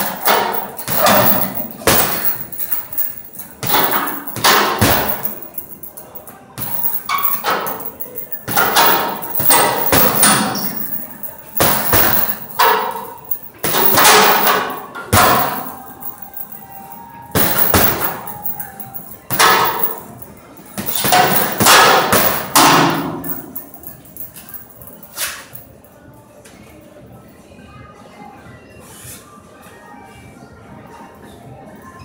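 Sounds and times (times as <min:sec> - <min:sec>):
chain jingling: 0:00.0 - 0:25.8.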